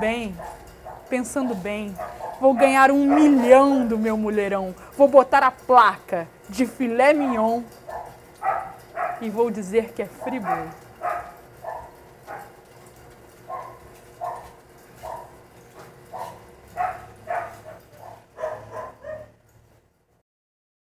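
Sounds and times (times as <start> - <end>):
dog barking: 0.3 - 4.0, 7.2 - 9.4, 10.2 - 12.6, 13.5 - 19.4.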